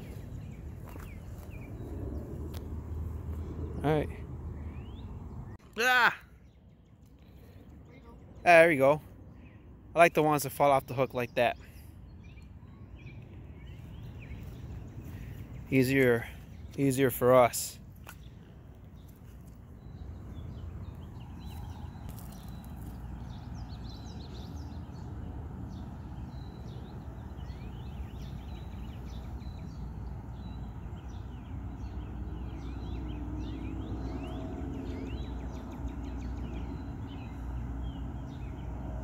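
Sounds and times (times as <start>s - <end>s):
steady low rumble: 0.0s - 5.6s
bird chirps and calls: 19.0s - 25.0s.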